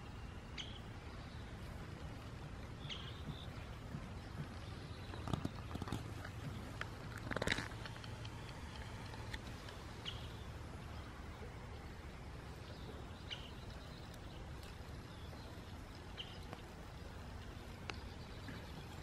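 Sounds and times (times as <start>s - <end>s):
steady low rumble: 0.0s - 19.0s
tortoise crawling through grass: 1.4s - 11.3s.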